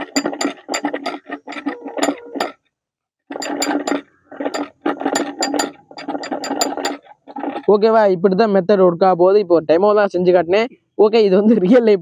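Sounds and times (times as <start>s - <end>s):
metal nut clinking against bottle: 0.0s - 2.6s, 3.3s - 7.1s.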